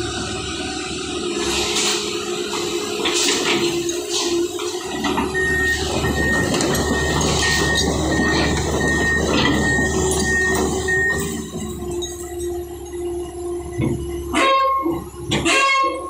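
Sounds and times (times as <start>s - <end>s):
backhoe diesel engine running: 0.0s - 16.0s
high warning beep: 5.0s - 12.5s.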